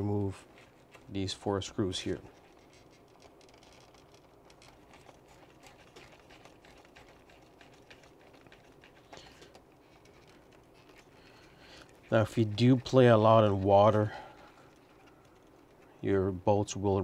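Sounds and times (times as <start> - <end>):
handling plastic: 0.0 - 16.1
small clicks: 2.3 - 12.0, 14.4 - 16.0.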